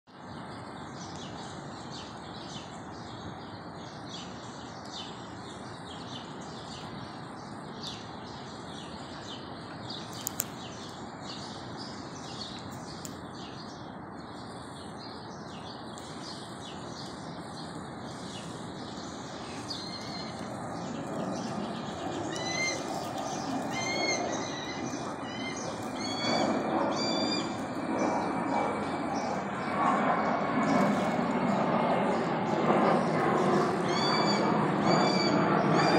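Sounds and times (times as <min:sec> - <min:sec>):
background hum: 0:00.3 - 0:35.9
small birds chirping: 0:00.9 - 0:35.9
sharp clicks: 0:10.1 - 0:10.6.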